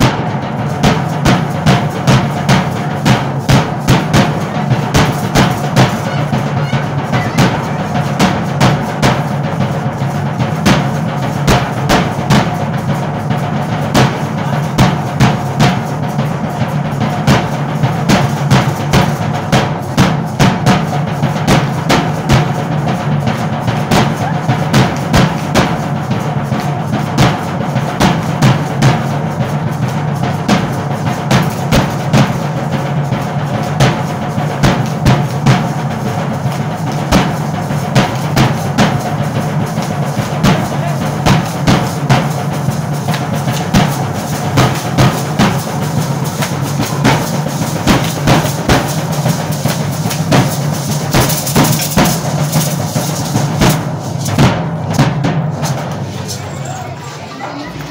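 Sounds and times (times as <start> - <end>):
drum beating dance rhythm: 0.0 - 57.9.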